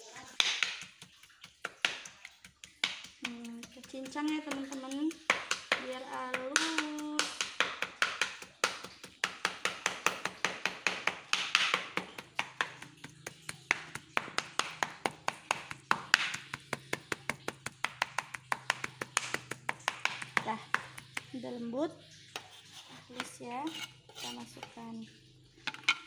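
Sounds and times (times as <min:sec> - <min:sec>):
knife chopping on cutting board: 0:00.4 - 0:21.3.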